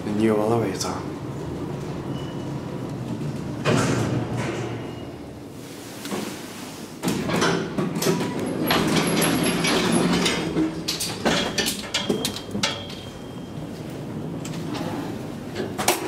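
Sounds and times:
elevator door drive humming: 0:00.0 - 0:05.5, 0:07.0 - 0:16.0
elevator door panels rattling: 0:07.0 - 0:14.7.

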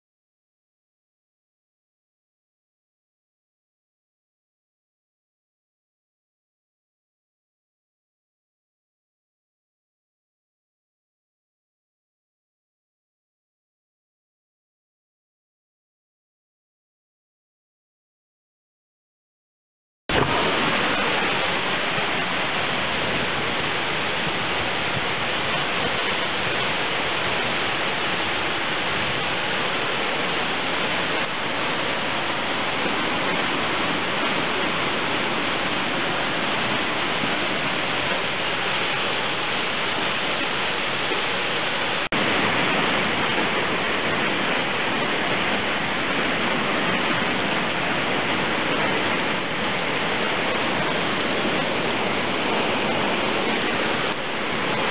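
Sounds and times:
heavy rain hissing: 0:20.1 - 0:54.9.

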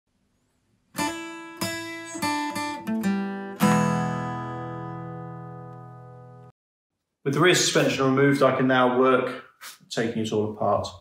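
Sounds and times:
acoustic guitar strumming and picking: 0:01.0 - 0:06.5.

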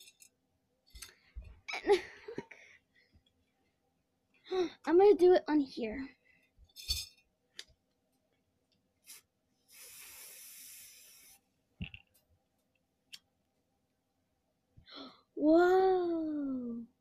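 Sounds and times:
aerosol can spraying: 0:09.0 - 0:11.4.

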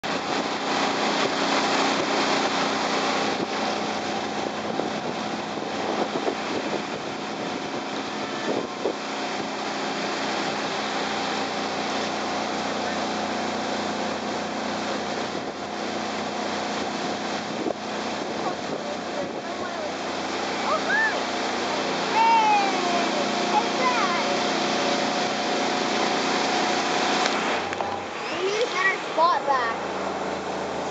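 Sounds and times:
wind on microphone: 0:00.0 - 0:10.9, 0:15.1 - 0:28.4
outboard motor droning: 0:00.0 - 0:30.9
water rushing along hull: 0:00.0 - 0:30.9.

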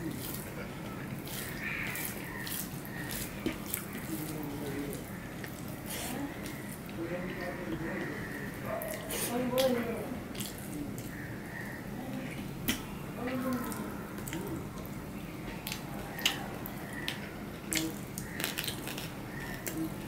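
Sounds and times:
wet mouth eating sounds: 0:07.7 - 0:11.2, 0:15.6 - 0:20.0.

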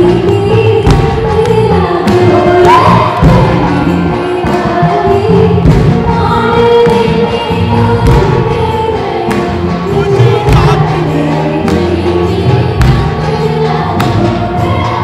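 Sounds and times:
live band with singing: 0:00.0 - 0:15.0
drum hits: 0:05.5 - 0:06.2, 0:10.2 - 0:11.0, 0:12.8 - 0:13.2.

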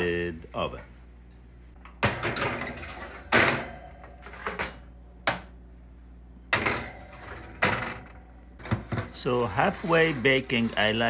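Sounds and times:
baking sheets clanking on racks: 0:02.0 - 0:04.9, 0:06.5 - 0:11.0
oven rack sliding on runners: 0:08.7 - 0:11.0.

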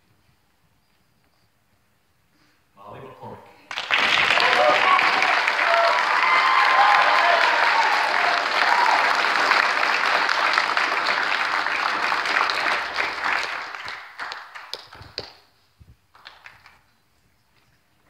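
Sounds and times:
audience applauding: 0:03.7 - 0:15.4, 0:16.2 - 0:16.8.

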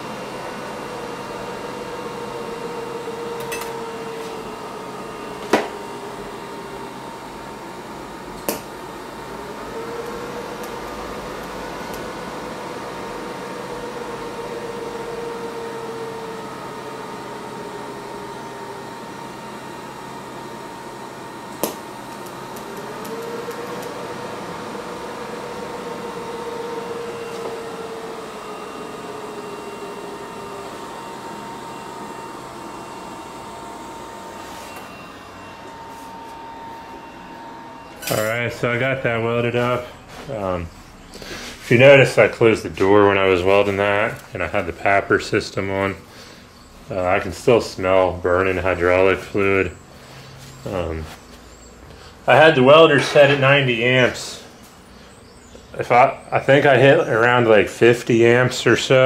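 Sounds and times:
welder humming and whining: 0:00.0 - 0:59.0.

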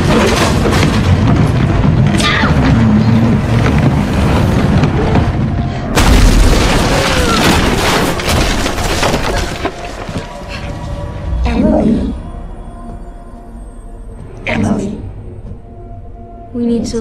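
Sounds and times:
heavy crash: 0:00.0 - 0:10.1
banging: 0:00.0 - 0:10.3
dramatic film music: 0:00.0 - 0:17.0.

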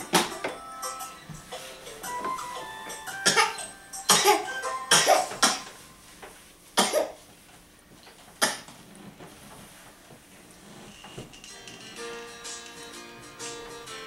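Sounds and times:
faint music with steady tones: 0:00.0 - 0:14.0
person coughing: 0:03.2 - 0:05.8, 0:06.8 - 0:07.2.

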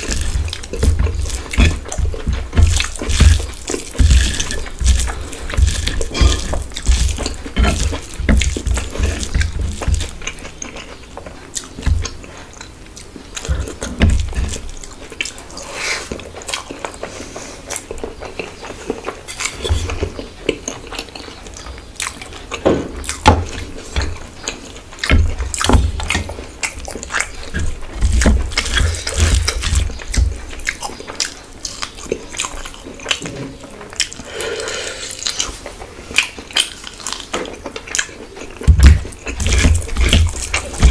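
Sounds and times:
fingers squishing wet rice: 0:00.0 - 0:12.6
chewing: 0:00.0 - 0:40.9.

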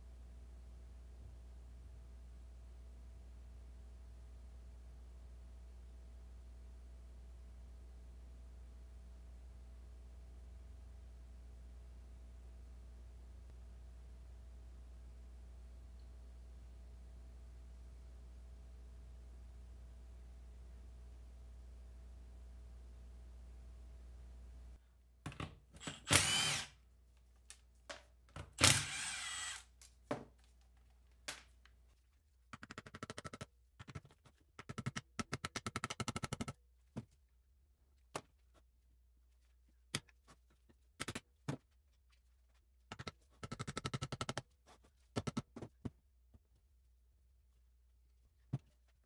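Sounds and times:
impact tool spinning: 0:25.8 - 0:26.7, 0:28.6 - 0:29.6.

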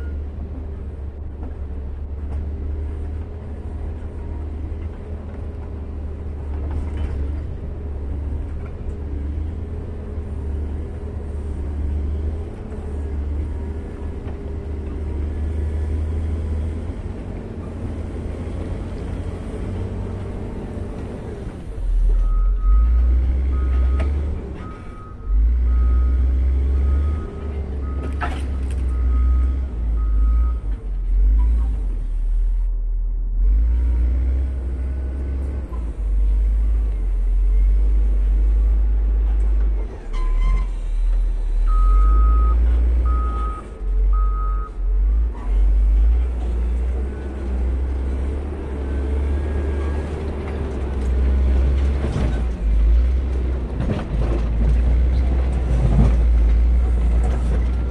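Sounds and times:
diesel engine rumbling: 0:00.0 - 0:57.9
reversing alarm beeping: 0:41.7 - 0:44.8.

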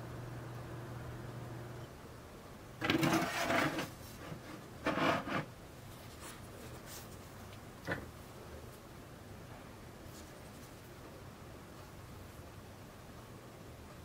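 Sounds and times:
rubbing and scraping: 0:02.8 - 0:07.2.

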